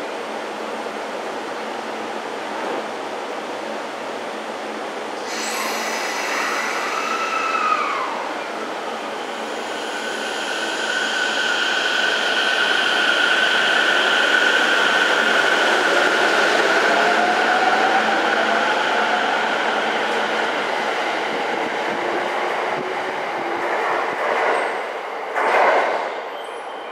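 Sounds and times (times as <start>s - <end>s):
train brake hiss: 5.2s - 8.3s, 9.1s - 14.1s
electric train motors whining: 5.2s - 17.2s.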